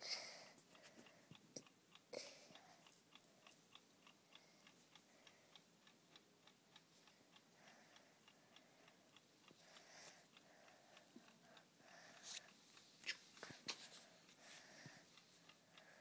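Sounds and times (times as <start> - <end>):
clock ticking fast: 0.0 - 14.0, 15.0 - 16.0.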